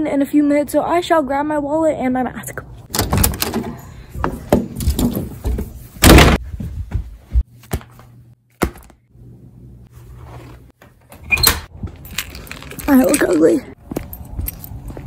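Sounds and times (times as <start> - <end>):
door shutting with thud: 2.9 - 3.8.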